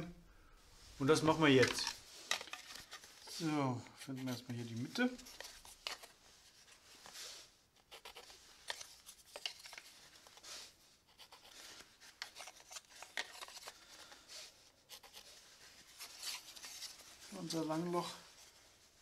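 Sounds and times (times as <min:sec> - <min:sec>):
pencil scratching on wood: 0:07.8 - 0:08.9, 0:11.1 - 0:13.5, 0:14.9 - 0:15.3.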